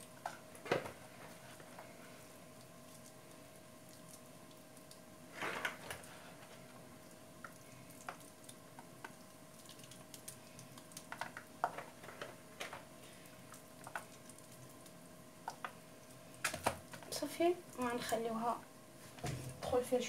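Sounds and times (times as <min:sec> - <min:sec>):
faint steady hum: 0:00.0 - 0:20.0
wet squishing of hands stuffing fish: 0:01.1 - 0:12.0.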